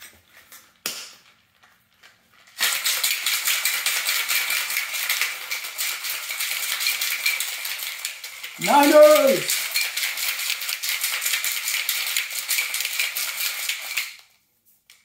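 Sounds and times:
cocktail shaker rattling: 2.5s - 14.2s
cocktail shaker parts clicking: 2.6s - 14.2s.

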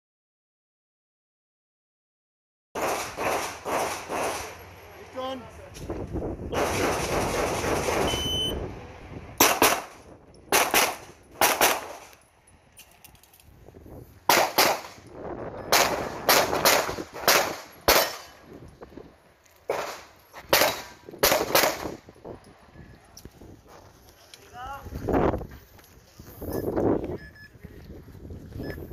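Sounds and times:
pistol shots in quick pairs: 2.8s - 4.6s, 6.5s - 8.2s, 9.4s - 12.1s, 14.3s - 15.0s, 15.7s - 18.4s, 19.7s - 22.0s.

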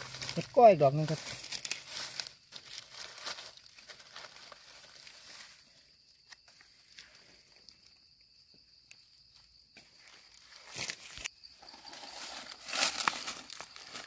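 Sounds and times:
dry leaves rustling: 0.0s - 7.9s, 9.9s - 14.0s.

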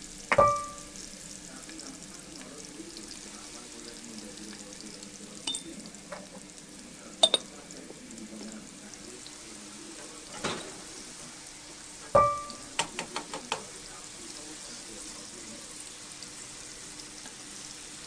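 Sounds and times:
onions sizzling in oil: 0.0s - 18.0s
metal utensils clinking on pot: 5.4s - 6.2s, 7.2s - 7.5s, 10.3s - 10.9s.

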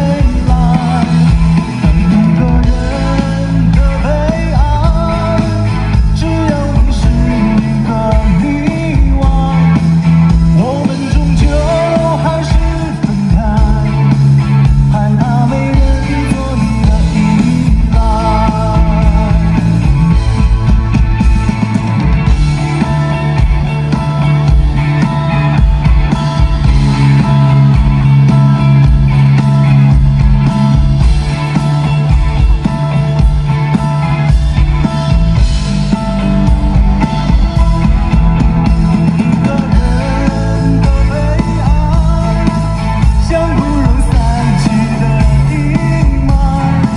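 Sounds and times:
man singing: 0.0s - 20.6s, 38.9s - 46.9s
live pop band playing: 0.0s - 46.9s.

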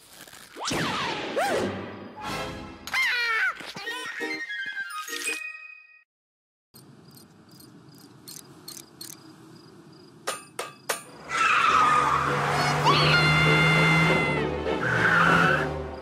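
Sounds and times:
crickets chirping: 6.8s - 11.1s
cartoon vehicle sound effect: 11.3s - 15.7s.

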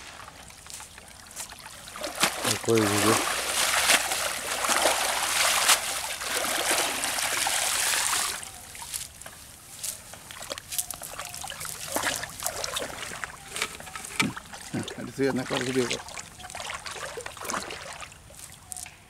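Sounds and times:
wet net rustling on grass: 0.0s - 18.8s
water splashing off net: 1.5s - 9.0s, 11.4s - 13.4s.

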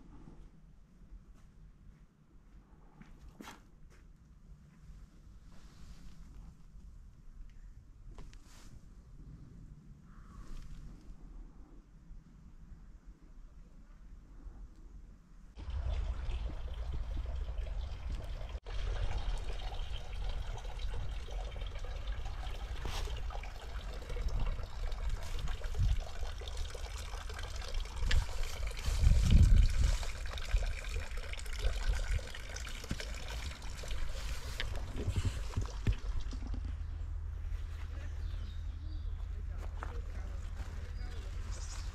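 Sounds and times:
low rumble: 15.5s - 21.6s
water trickling and splashing: 15.6s - 37.4s.

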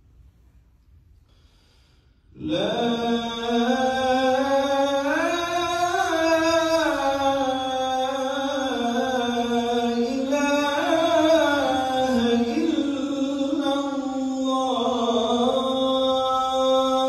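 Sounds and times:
man chanting call to prayer: 2.4s - 17.0s.

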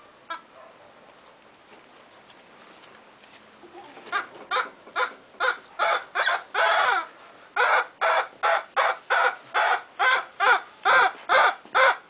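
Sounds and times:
puppy yapping: 7.6s - 12.0s.

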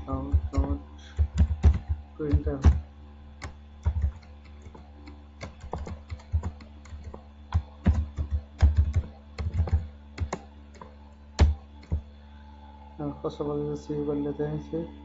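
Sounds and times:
low electrical hum: 0.0s - 15.0s
keyboard key clicks: 3.4s - 12.0s.

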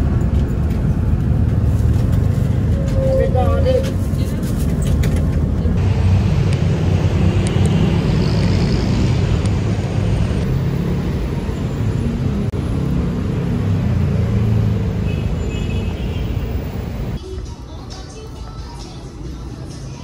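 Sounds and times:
vehicle engines passing: 0.0s - 17.6s.

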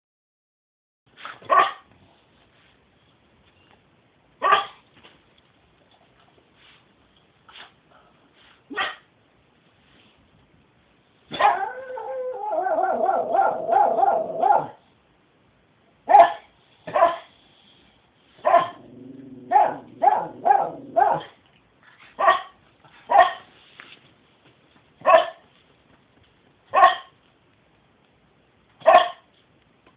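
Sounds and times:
dog barking: 1.4s - 1.9s, 4.4s - 4.8s, 8.7s - 9.1s, 11.3s - 14.8s, 16.1s - 17.3s, 18.4s - 18.8s, 19.5s - 21.4s, 22.2s - 23.5s, 25.0s - 25.4s, 26.7s - 27.2s, 28.8s - 29.3s
dog howling: 11.4s - 14.4s
dog growling: 18.7s - 21.2s.

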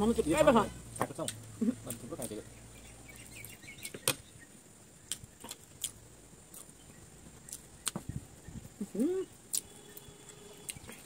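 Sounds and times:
chewing: 5.1s - 6.8s.

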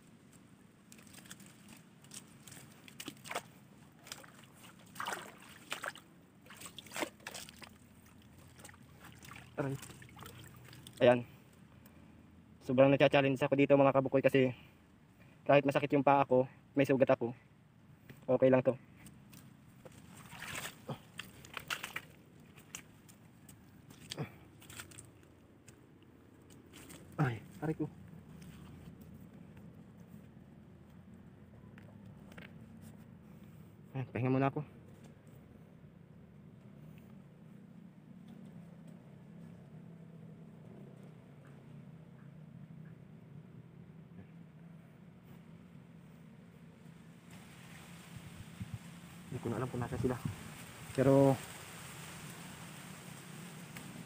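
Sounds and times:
crunching footsteps: 0.2s - 11.0s, 19.0s - 31.2s
shallow water sloshing and splashing: 0.8s - 11.1s, 19.3s - 25.7s, 26.4s - 27.6s, 47.2s - 49.3s.

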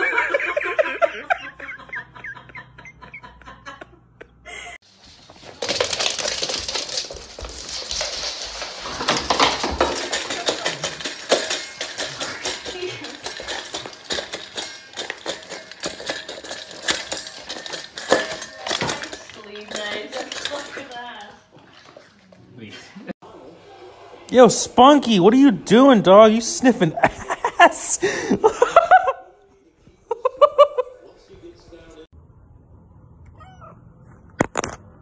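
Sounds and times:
dog clinking metal bowl: 5.6s - 22.0s.

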